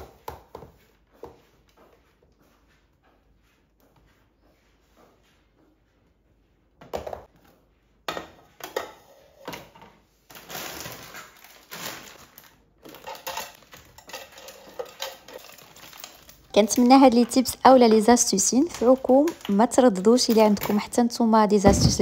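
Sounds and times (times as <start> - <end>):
plastic bag rustling: 10.3 - 22.0.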